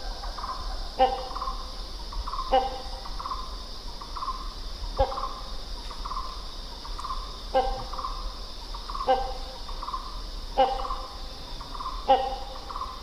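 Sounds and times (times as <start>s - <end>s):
hornbill harsh call: 0.0s - 1.7s, 2.3s - 3.5s, 7.0s - 8.3s, 8.9s - 13.0s
insects droning: 0.0s - 13.0s.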